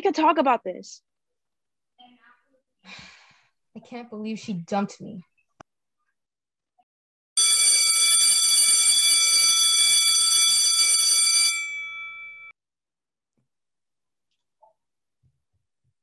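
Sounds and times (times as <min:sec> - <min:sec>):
electric bell ringing: 0:07.4 - 0:12.5.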